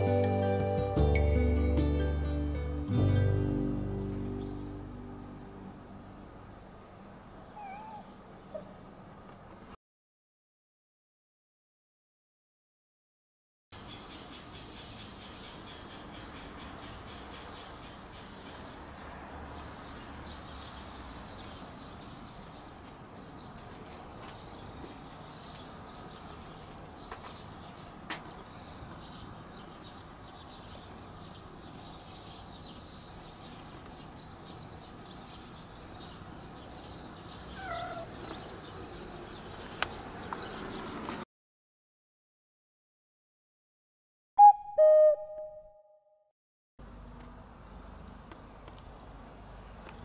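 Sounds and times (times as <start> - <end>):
steady outdoor hiss: 0.0 - 9.8, 13.8 - 40.3, 46.8 - 50.0
cat meowing: 7.6 - 8.7, 37.6 - 38.2
faint high chirps: 44.4 - 46.2.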